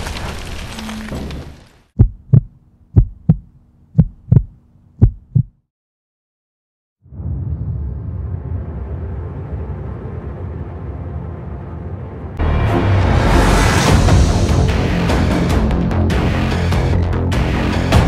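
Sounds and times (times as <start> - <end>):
heartbeat double thumps: 2.0 - 5.6.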